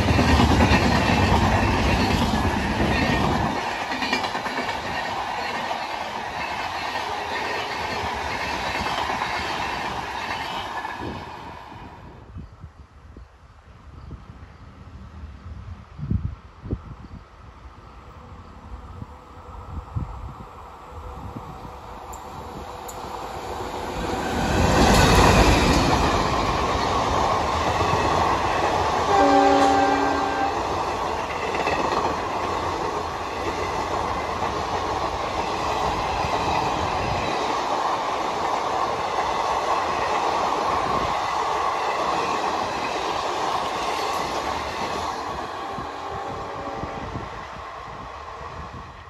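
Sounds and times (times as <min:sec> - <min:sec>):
wheels on rail: 0:00.0 - 0:12.8, 0:13.6 - 0:49.0
train passing at speed: 0:00.0 - 0:49.0
train horn blast: 0:29.1 - 0:30.7, 0:45.5 - 0:47.2.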